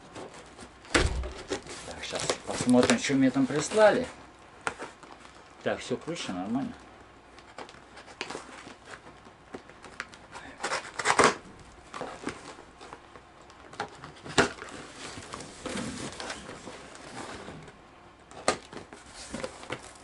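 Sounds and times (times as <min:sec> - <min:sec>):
scratching at packing tape: 0:07.3 - 0:17.4
tape ripping: 0:10.0 - 0:11.4.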